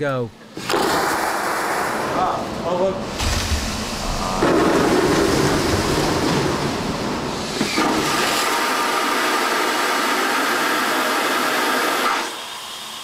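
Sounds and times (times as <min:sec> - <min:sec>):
vacuum toilet flushing: 0:03.8 - 0:13.0.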